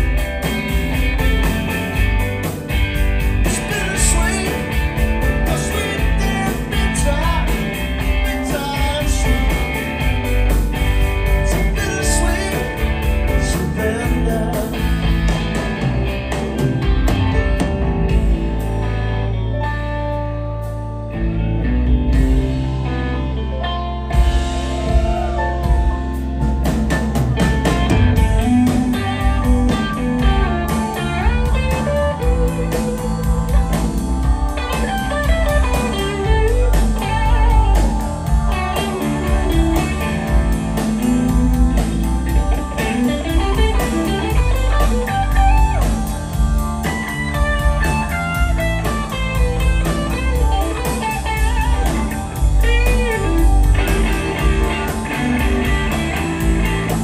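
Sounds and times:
drums: 0:00.0 - 0:57.0
low bass notes: 0:00.0 - 0:57.0
electric guitar solo: 0:27.7 - 0:57.0.

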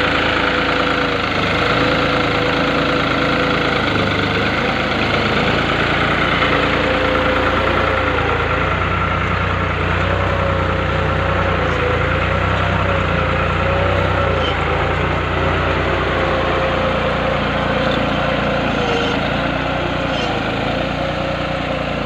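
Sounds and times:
tractor diesel engine under load: 0:00.0 - 0:22.0.

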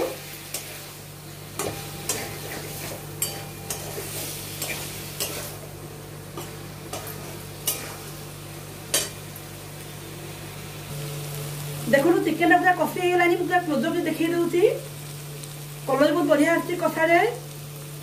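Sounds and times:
chicken sizzling in a pan: 0:00.0 - 0:18.0.

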